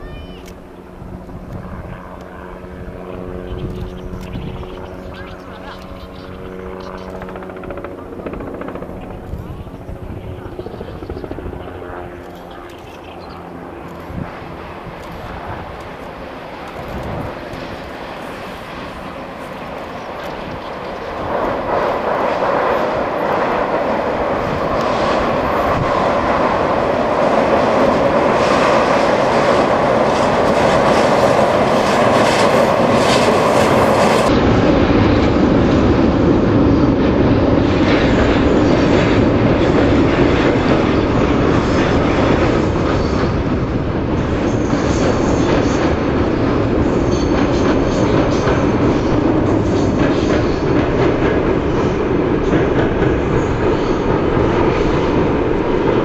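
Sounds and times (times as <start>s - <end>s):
train wheels rumbling on bridge: 14.2s - 56.0s.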